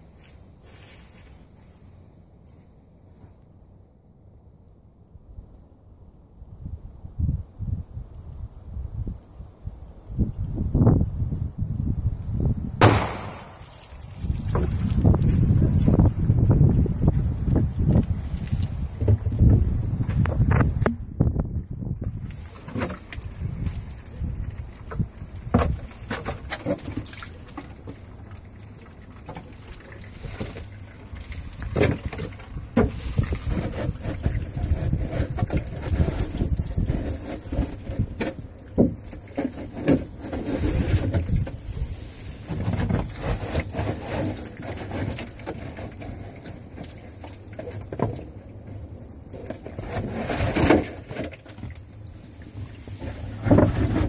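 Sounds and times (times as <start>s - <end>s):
water sloshing and dripping: 12.9s - 20.9s, 22.1s - 54.0s
thin plastic knocks and crackles: 12.9s - 28.2s, 31.5s - 41.8s, 42.4s - 54.0s.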